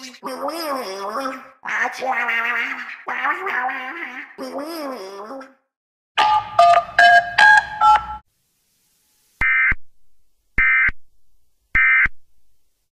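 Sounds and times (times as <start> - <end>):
data tone bursts: 6.2 - 8.2
touch-tone beeps: 6.2 - 8.2.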